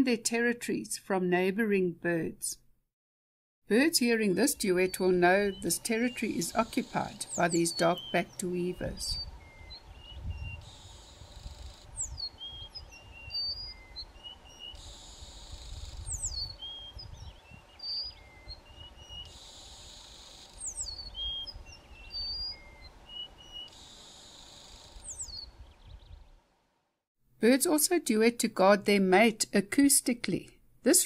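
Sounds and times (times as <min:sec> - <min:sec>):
bird buzzing phrase: 0:04.6 - 0:09.3.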